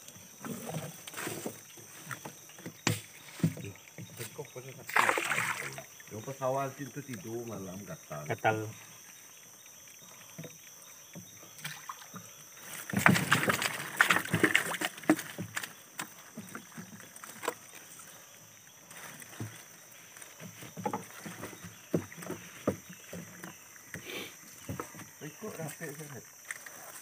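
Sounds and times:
prawn trap scraping in boat: 0.4 - 6.3.

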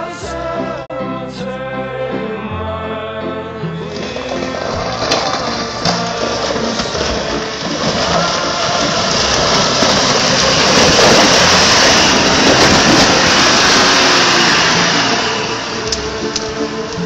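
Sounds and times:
vehicle engine running hard: 3.8 - 17.0.

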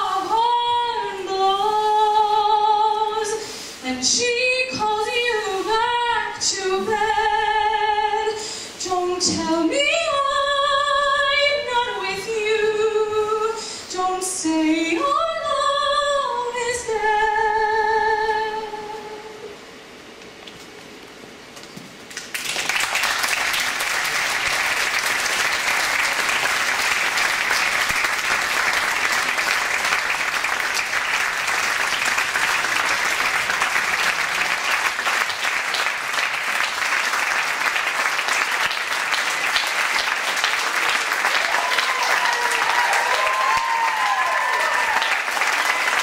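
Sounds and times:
audience applauding: 22.1 - 46.0.

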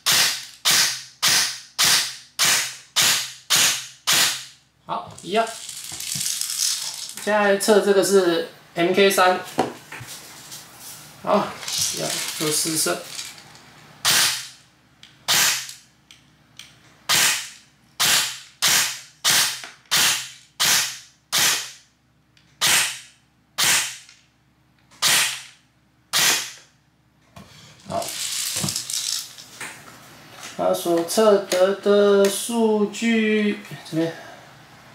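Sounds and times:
airsoft rifle shots: 0.0 - 4.5, 14.0 - 14.5, 15.3 - 15.7, 17.1 - 21.8, 22.6 - 24.1, 25.0 - 25.5, 26.1 - 26.6.

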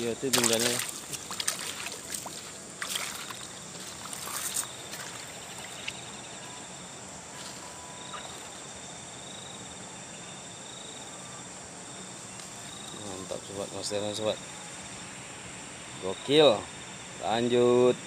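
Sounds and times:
fish splashing in water: 0.0 - 6.1
constant hiss: 0.0 - 18.0
pulsing insect trill: 0.0 - 18.0.

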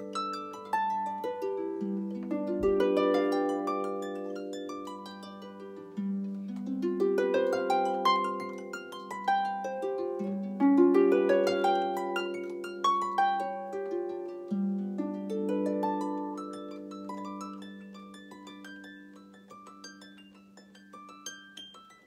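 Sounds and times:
harp playing: 0.0 - 22.0.

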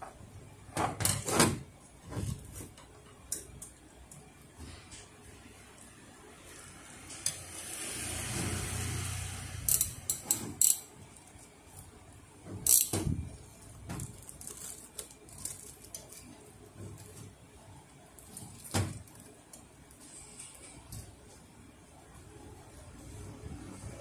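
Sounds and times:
roller and metal bracket clicks: 9.6 - 11.8, 12.6 - 13.4.

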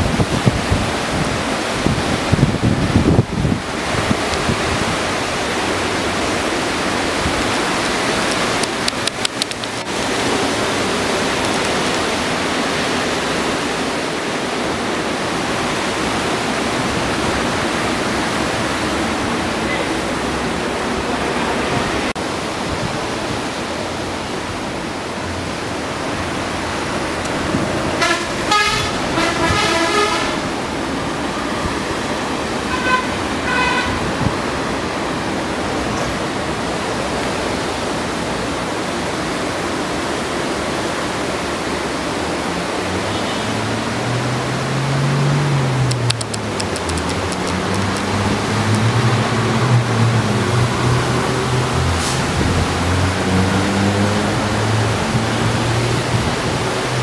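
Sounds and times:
wind: 0.0 - 57.0
sharp clicks: 8.2 - 9.9, 45.8 - 48.9.

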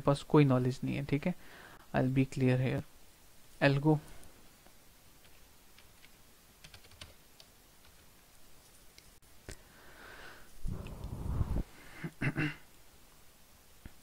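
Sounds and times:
low rumbling noise: 10.6 - 12.4.

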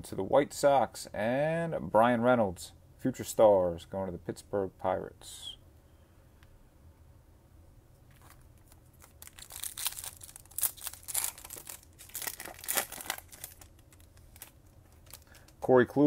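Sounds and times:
foil wrapper tearing and crinkling: 8.1 - 15.6.

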